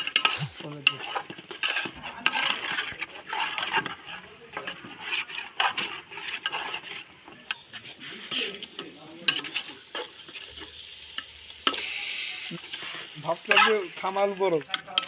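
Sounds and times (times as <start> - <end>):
spatula stirring thick curry: 0.0 - 15.0
metal clinking on pot: 13.4 - 15.0.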